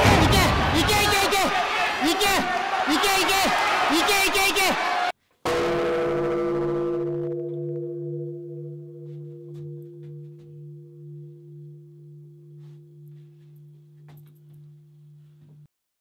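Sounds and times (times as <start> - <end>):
large temple bell ringing: 5.5 - 15.7.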